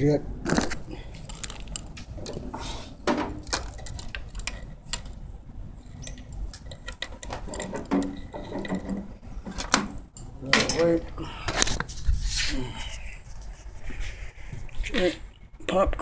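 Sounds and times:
equipment clicking and rattling: 0:00.4 - 0:11.1.

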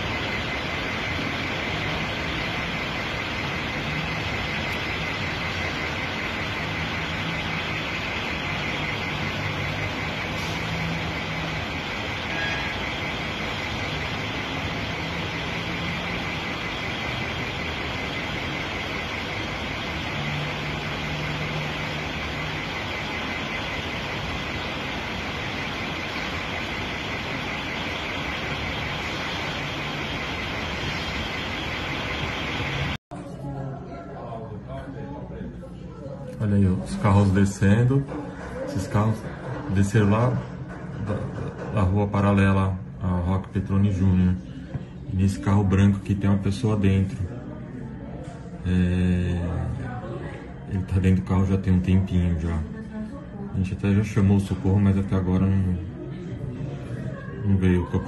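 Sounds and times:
heavy rain hissing: 0:00.0 - 0:33.0
low traffic hum: 0:00.0 - 0:58.0.

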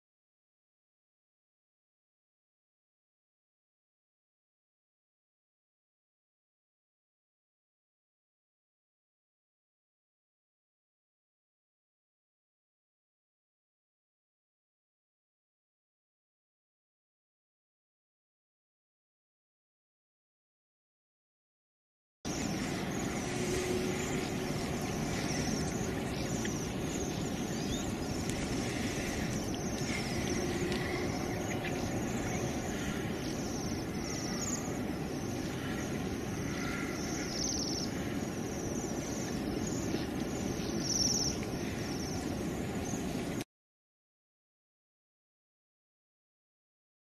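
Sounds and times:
outdoor background noise: 0:22.3 - 0:43.5.

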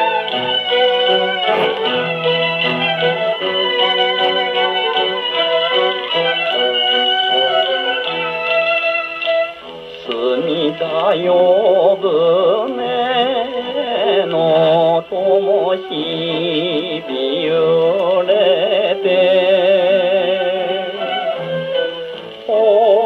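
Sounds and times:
orchestral accompaniment: 0:00.0 - 0:23.0
man singing with vibrato: 0:10.0 - 0:23.0.

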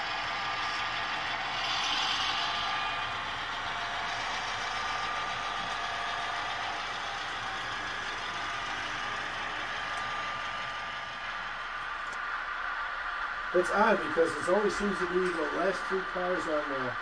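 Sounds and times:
diesel engine sound effect: 0:00.0 - 0:17.0
model train rolling on track: 0:00.0 - 0:17.0.

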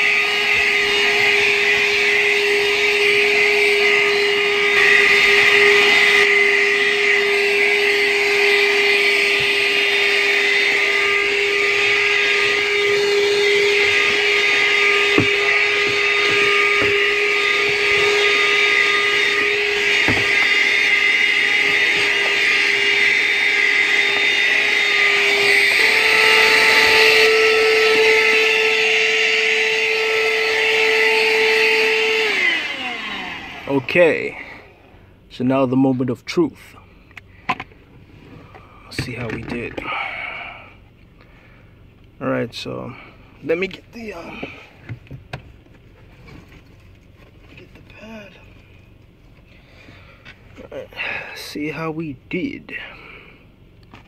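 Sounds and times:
handheld vacuum running: 0:00.0 - 0:34.9, 0:43.6 - 0:45.2.

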